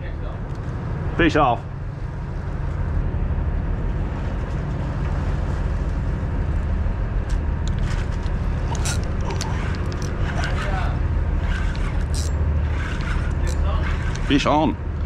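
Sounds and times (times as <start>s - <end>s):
boat engine droning: 0.0s - 15.0s
sharp clicks: 7.7s - 10.6s.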